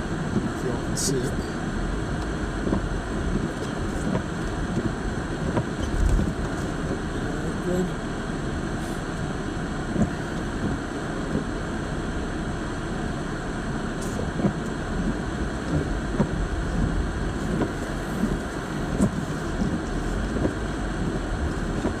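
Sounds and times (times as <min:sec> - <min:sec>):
car cabin engine rumble: 0:00.0 - 0:22.0.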